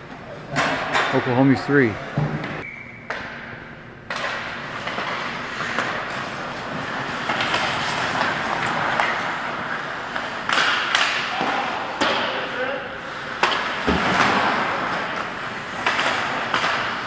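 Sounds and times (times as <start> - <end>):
hockey stick hitting puck: 2.1 - 12.5, 13.2 - 17.0
skates scraping on ice: 4.1 - 17.0.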